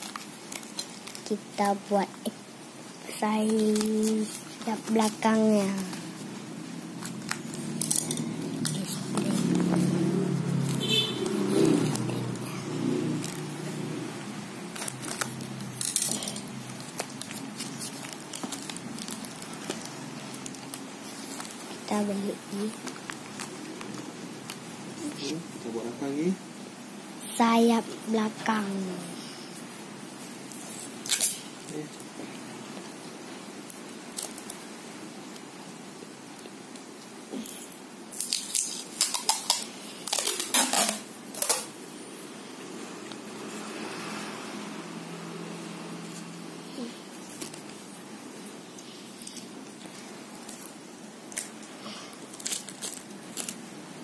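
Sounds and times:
tape crinkling: 0:00.0 - 0:02.4, 0:03.1 - 0:13.8, 0:14.6 - 0:24.7, 0:30.5 - 0:32.1, 0:33.6 - 0:34.6, 0:37.4 - 0:41.9, 0:46.1 - 0:54.0
cardboard crackling: 0:03.1 - 0:06.3, 0:14.7 - 0:24.6
scissors snipping plastic tape: 0:38.1 - 0:41.7.

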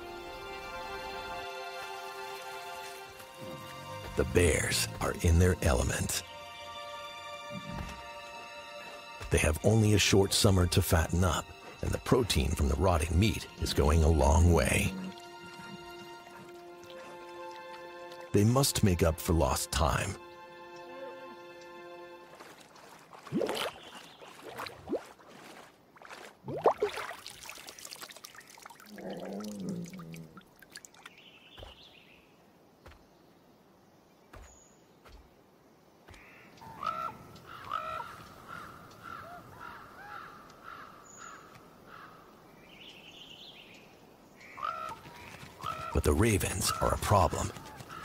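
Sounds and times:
bear lapping and splashing water: 0:01.7 - 0:04.9, 0:14.6 - 0:18.3, 0:22.2 - 0:31.8
ravens croaking: 0:28.8 - 0:30.5, 0:36.1 - 0:42.4, 0:44.4 - 0:48.0.

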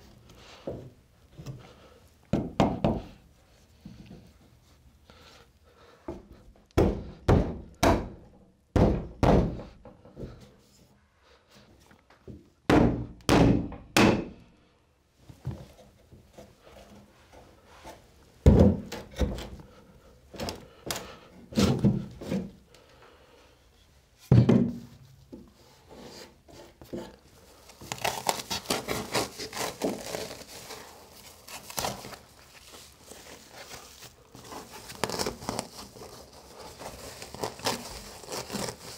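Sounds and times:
hammer knocking on wooden boards: 0:02.3 - 0:03.1, 0:06.8 - 0:08.2, 0:08.8 - 0:09.7
crinkling and rustling: 0:24.2 - 0:38.9.

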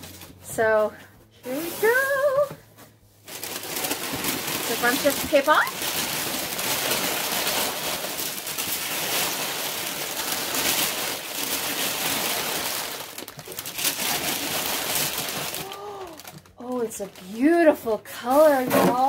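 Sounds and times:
packing paper crinkling: 0:03.2 - 0:18.4.

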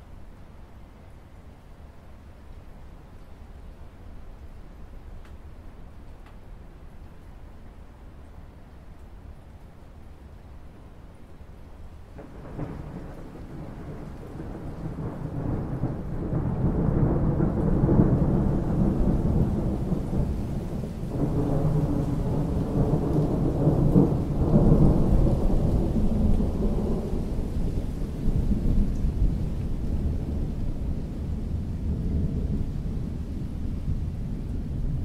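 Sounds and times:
steady rain: 0:00.0 - 0:35.0
rolling thunder: 0:12.2 - 0:35.0.

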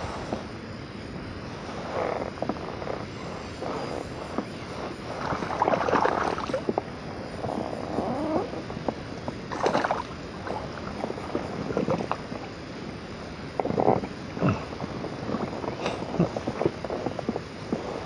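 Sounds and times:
fish splashing in water: 0:05.2 - 0:06.9, 0:09.4 - 0:12.4.

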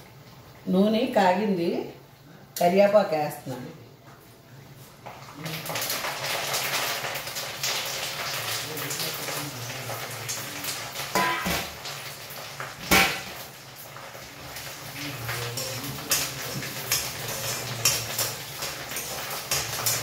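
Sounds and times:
leaves sizzling in hot oil: 0:05.0 - 0:20.0.

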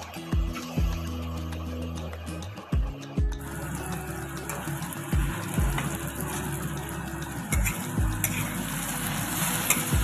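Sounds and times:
background music with thumping beat: 0:00.0 - 0:10.0
vegetables sizzling in a pan: 0:03.4 - 0:10.0
spoon stirring in a pan: 0:04.4 - 0:10.0.

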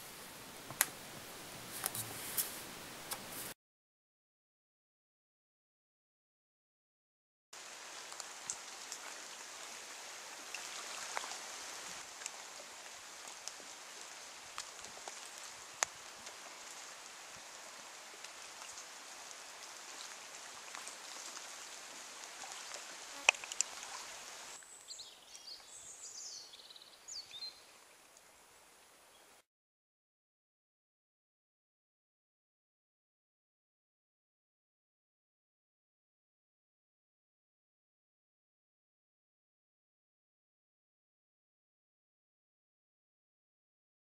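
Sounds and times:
rain falling on foliage: 0:00.0 - 0:03.5, 0:07.6 - 0:29.3
small bird singing: 0:24.7 - 0:27.7.

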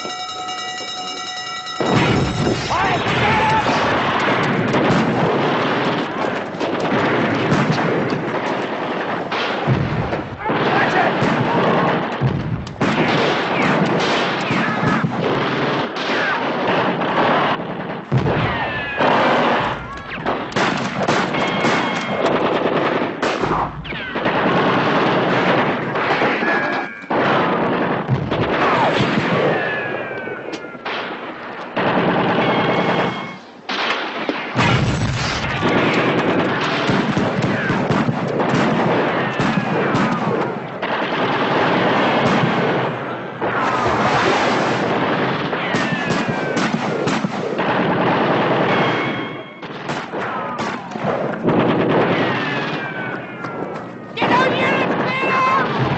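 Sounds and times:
heavy gunfire: 0:01.8 - 0:55.9.

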